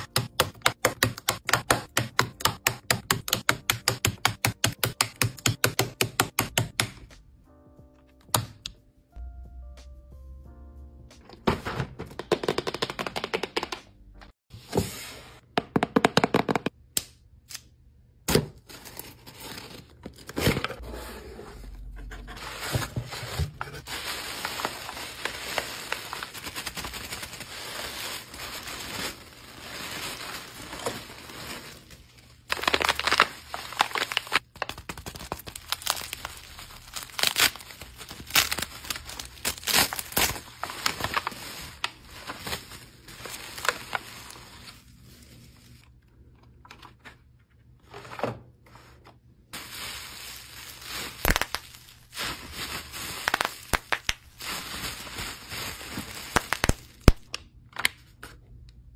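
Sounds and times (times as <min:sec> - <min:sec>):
tissue paper rustling and tearing: 0:22.1 - 0:34.4, 0:35.0 - 0:45.9, 0:49.5 - 0:57.2
bubble wrap crackling: 0:22.4 - 0:45.8, 0:49.5 - 0:57.3.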